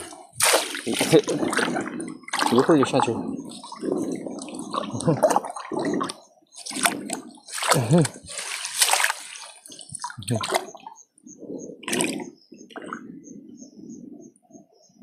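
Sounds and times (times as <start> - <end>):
rush of water: 0.0 - 10.8
trap splashing into water: 7.5 - 9.4.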